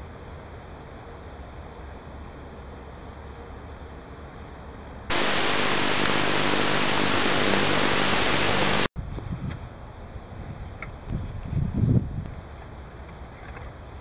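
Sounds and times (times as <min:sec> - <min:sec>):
faint outdoor background sound: 0:00.0 - 0:11.6
loud static hiss: 0:05.1 - 0:08.9
low hum: 0:05.1 - 0:08.9.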